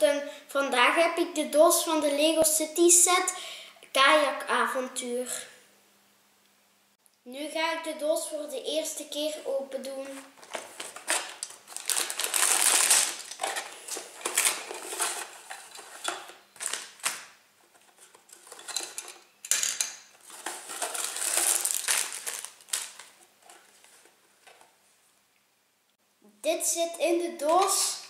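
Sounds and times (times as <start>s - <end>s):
plastic bags crinkling and rattling: 10.0s - 24.7s.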